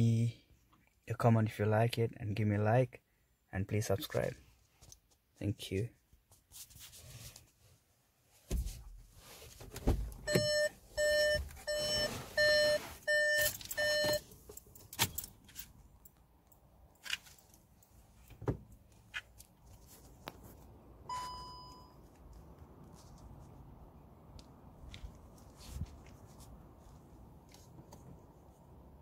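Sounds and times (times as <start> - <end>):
electronic warning beeps: 10.3 - 14.2, 21.1 - 22.0.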